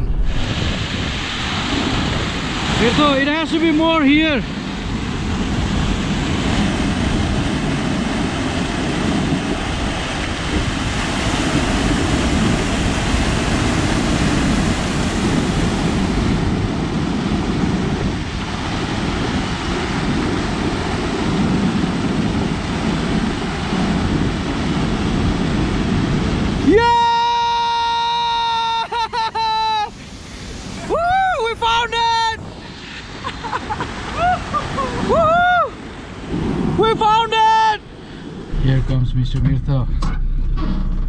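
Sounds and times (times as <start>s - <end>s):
waterfall rushing: 0.0s - 16.8s.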